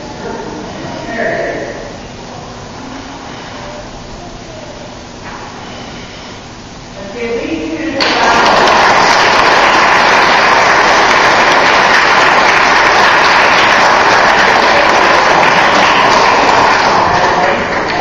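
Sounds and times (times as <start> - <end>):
audience applauding: 8.0 - 18.0.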